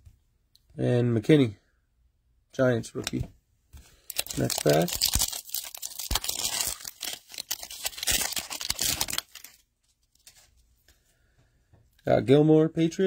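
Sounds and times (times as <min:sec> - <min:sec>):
foil wrapper tearing and crinkling: 0:04.1 - 0:09.6.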